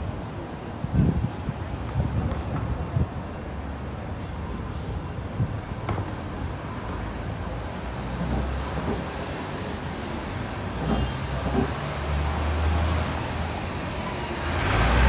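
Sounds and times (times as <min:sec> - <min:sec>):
cars driving past: 0:05.6 - 0:15.0.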